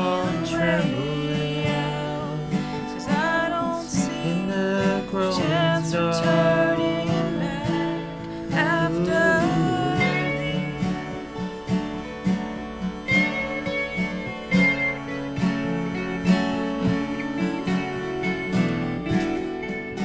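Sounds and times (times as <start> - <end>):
strummed acoustic guitar: 0.0 - 20.0
high held note: 8.8 - 19.8.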